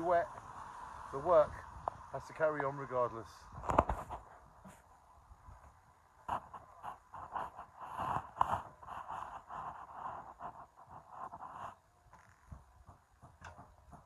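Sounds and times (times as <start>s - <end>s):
cloth rustling against microphone: 3.5s - 12.7s.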